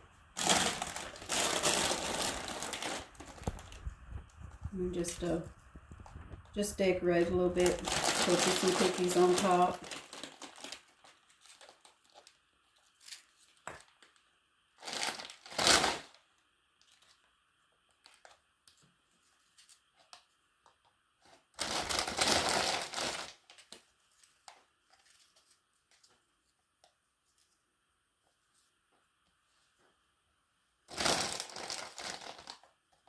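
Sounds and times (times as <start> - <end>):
plastic bag crinkling: 0.3 - 14.2, 14.8 - 16.2, 21.2 - 26.1, 30.9 - 32.8.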